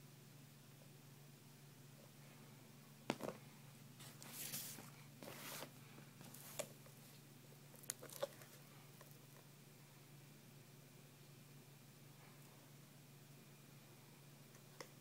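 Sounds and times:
leather shoe rustling in hand: 0:04.0 - 0:07.2.

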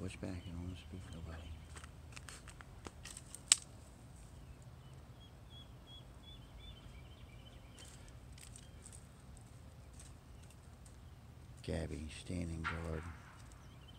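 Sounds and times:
sharp click: 0:12.6 - 0:13.9.

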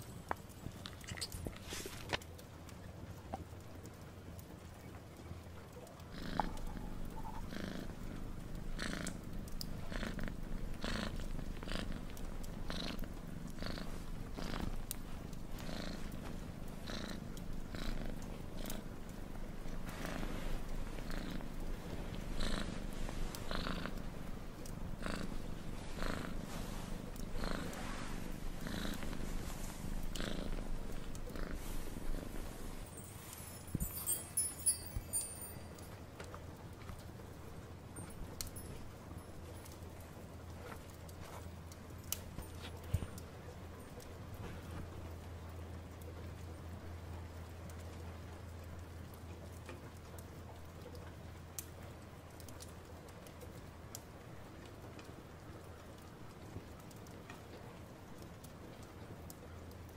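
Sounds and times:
cat purring: 0:00.6 - 0:35.9.

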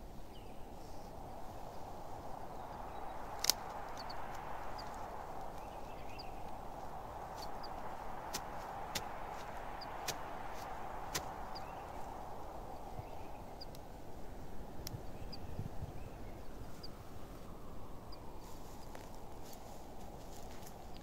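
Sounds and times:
steady outdoor hiss: 0:00.0 - 0:21.0
small bird chirping: 0:02.3 - 0:14.0, 0:14.8 - 0:19.1.

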